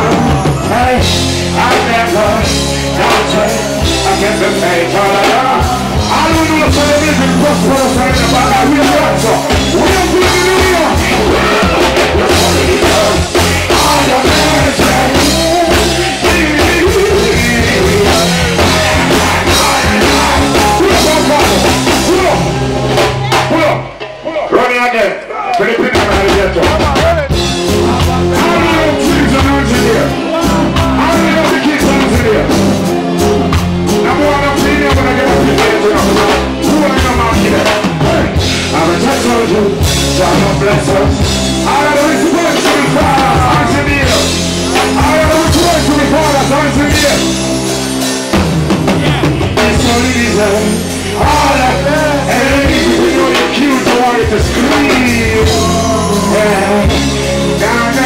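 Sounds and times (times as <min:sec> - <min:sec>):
man singing into microphone: 0:00.0 - 0:22.7, 0:25.6 - 0:32.8, 0:33.9 - 0:47.5, 0:48.9 - 0:58.0
live reggae band playing: 0:00.0 - 0:58.0.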